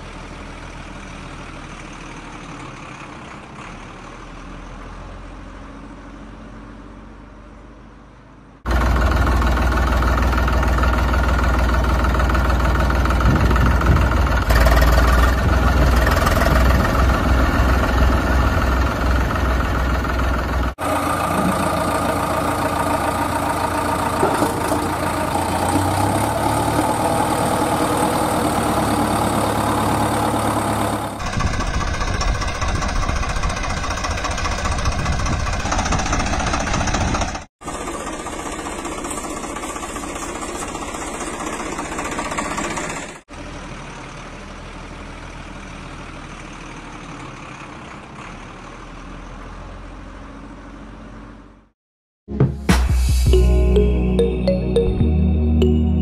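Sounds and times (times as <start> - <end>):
heavy vehicle engine idling: 0.0 - 6.0, 7.2 - 49.8.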